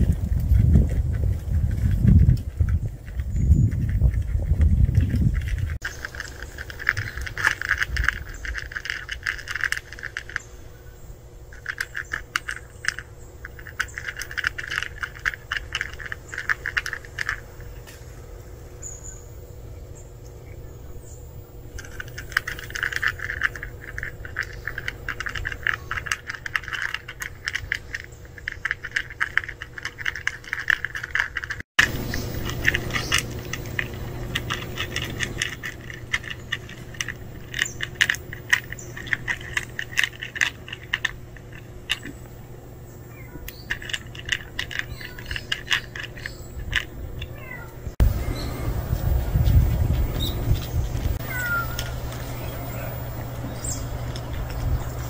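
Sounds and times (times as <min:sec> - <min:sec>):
food rattling against plastic: 0:00.0 - 0:10.5, 0:11.5 - 0:17.8, 0:21.7 - 0:42.3, 0:43.3 - 0:47.6
cats crunching dry kibble: 0:00.0 - 0:10.8, 0:11.4 - 0:18.6, 0:21.5 - 0:48.1, 0:48.8 - 0:55.0.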